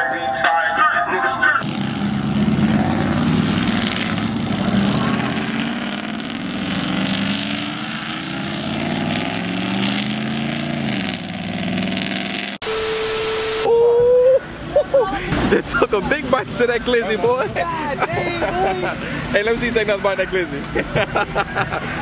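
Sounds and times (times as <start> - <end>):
pickup trucks driving past: 1.6 - 12.5, 14.4 - 22.0.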